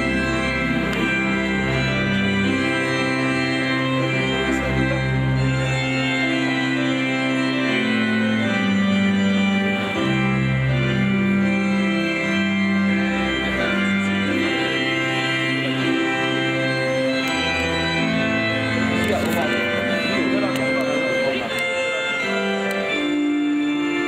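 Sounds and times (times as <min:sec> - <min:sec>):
organ playing sustained chords: 0:00.0 - 0:24.0.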